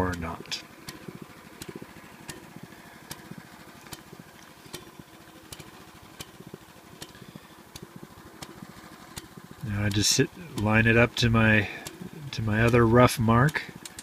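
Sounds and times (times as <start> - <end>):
sharp clicks: 0.0 - 14.0
small gasoline engine idling: 0.0 - 14.0.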